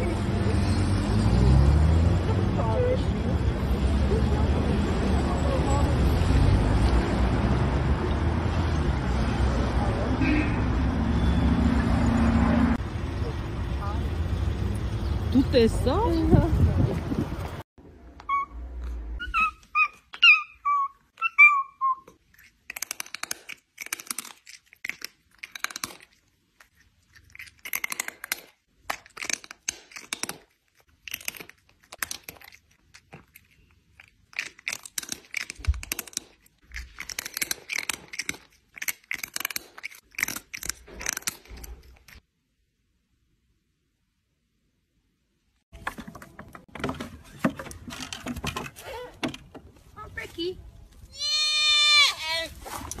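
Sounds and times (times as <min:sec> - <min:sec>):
cat chirping meows: 0:18.2 - 0:18.6, 0:19.2 - 0:22.1.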